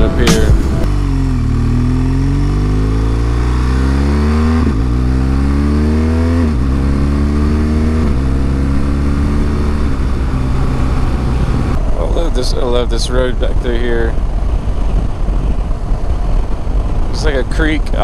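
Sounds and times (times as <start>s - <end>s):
motorcycle engine accelerating: 0.0s - 18.0s
wind rush on microphone: 9.4s - 18.0s.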